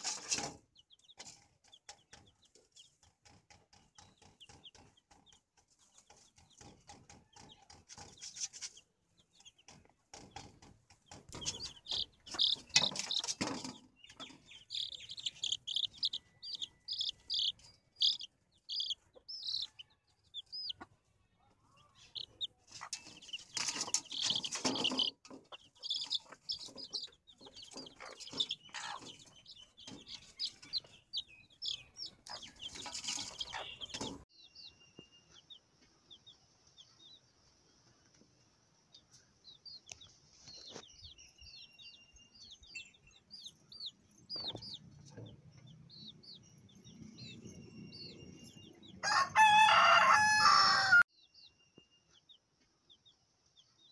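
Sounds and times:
chicks peeping: 0:00.0 - 0:51.5, 0:52.1 - 0:53.9
hen clucking: 0:03.9 - 0:34.2.

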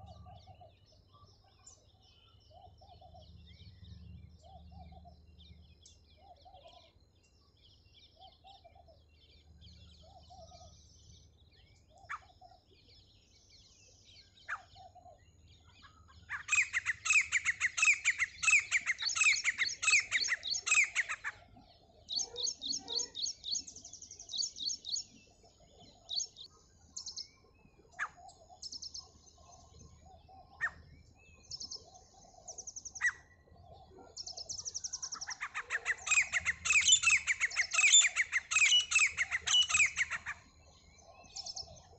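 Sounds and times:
francolins calling: 0:15.9 - 0:21.4, 0:35.0 - 0:40.4.

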